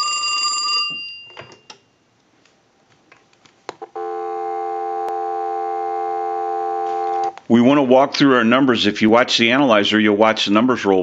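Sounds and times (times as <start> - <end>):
telephone bells ringing: 0.0 - 1.7
dial tone: 3.9 - 7.3.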